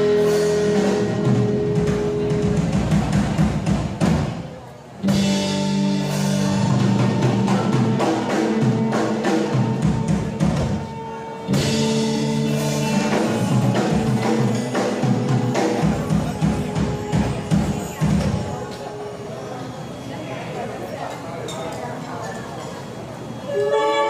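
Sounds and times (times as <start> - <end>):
electric guitars: 0.0 - 4.4, 5.0 - 19.0
gamelan band playing: 0.0 - 19.3.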